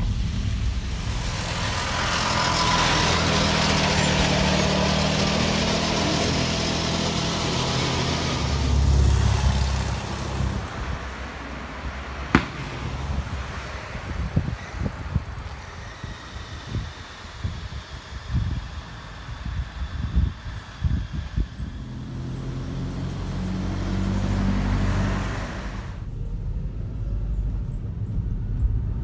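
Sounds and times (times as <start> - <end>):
car engine running: 0.0 - 29.0
low rumble: 0.0 - 29.0
tyre and road noise: 0.0 - 29.0.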